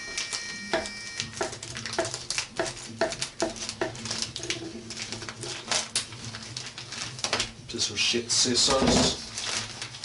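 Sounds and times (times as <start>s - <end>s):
plastic packaging crinkling: 0.0s - 0.5s, 1.1s - 10.0s
scissors snipping plastic: 0.1s - 7.5s.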